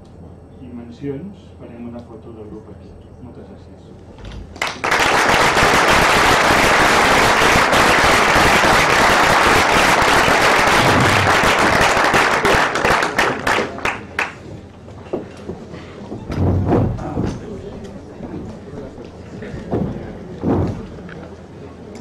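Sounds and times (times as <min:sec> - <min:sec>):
audience applauding: 0:04.6 - 0:14.5.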